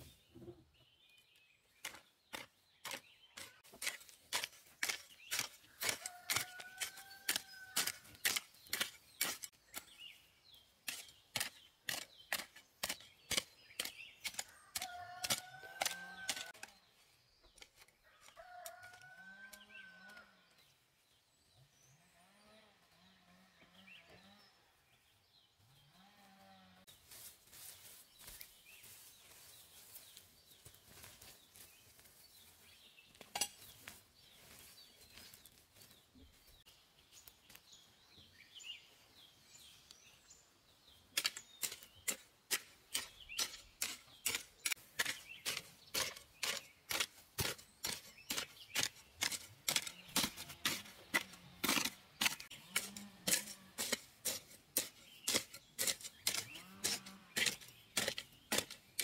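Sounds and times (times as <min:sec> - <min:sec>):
hoe chopping into dry soil: 0:03.8 - 0:10.0, 0:41.2 - 0:59.0
hands rustling soil and weeds: 0:26.9 - 0:37.9.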